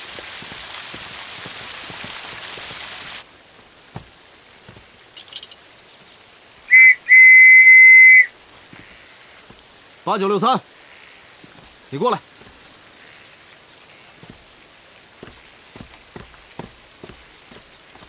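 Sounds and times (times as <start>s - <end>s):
falling water splashing: 0.0s - 18.0s
whistle blasts: 6.7s - 8.3s.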